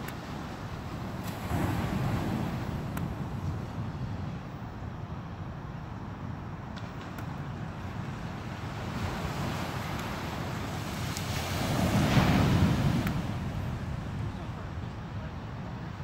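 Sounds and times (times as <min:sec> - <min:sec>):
surf washing onto beach: 0:00.0 - 0:04.4, 0:07.6 - 0:14.8.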